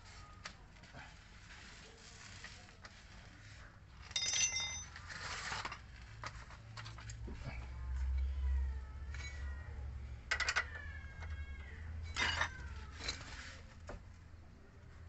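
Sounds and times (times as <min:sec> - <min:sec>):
tools scraping and rummaging: 0:01.2 - 0:07.4, 0:09.0 - 0:09.5, 0:10.3 - 0:11.4, 0:12.0 - 0:14.0
metal hand tools clinking: 0:04.0 - 0:05.0, 0:12.0 - 0:13.3.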